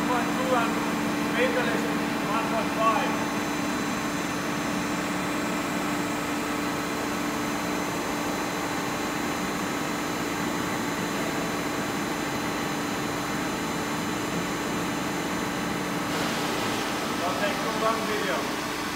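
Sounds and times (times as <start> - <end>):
boring mill machine hum: 0.0 - 18.9.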